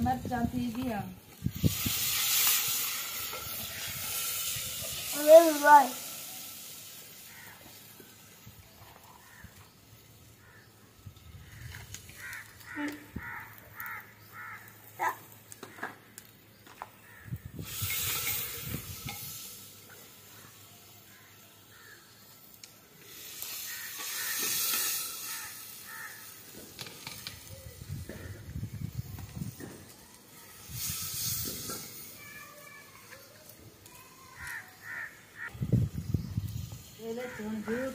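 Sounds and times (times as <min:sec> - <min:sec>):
loud hiss: 0:01.4 - 0:10.6, 0:17.0 - 0:37.9
crows cawing: 0:07.2 - 0:07.9, 0:09.1 - 0:09.6, 0:10.4 - 0:10.8, 0:11.4 - 0:15.0, 0:17.0 - 0:17.4, 0:20.3 - 0:22.2, 0:23.4 - 0:26.6, 0:34.0 - 0:35.6, 0:37.2 - 0:37.9.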